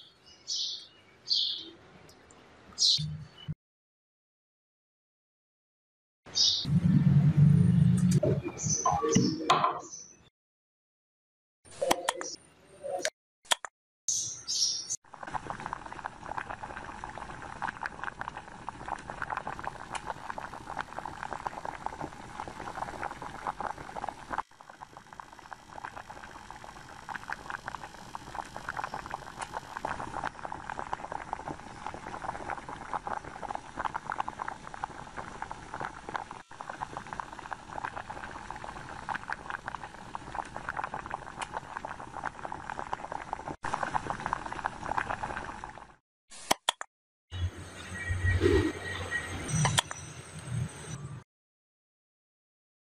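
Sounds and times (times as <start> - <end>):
gas bubbles fizzing in water: 15.1 - 46.0.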